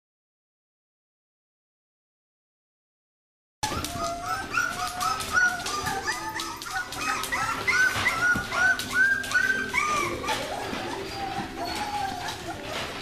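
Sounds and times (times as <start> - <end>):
puppies whining and yipping: 3.6 - 13.0.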